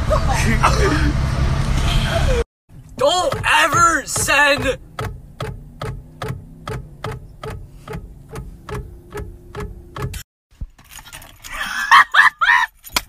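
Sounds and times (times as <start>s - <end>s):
turn signal clicking: 2.7s - 10.2s.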